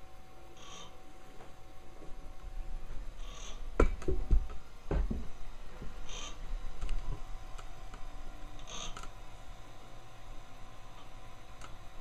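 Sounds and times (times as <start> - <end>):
motor rotor turning: 0.5 - 1.0, 3.1 - 3.8, 5.9 - 12.0.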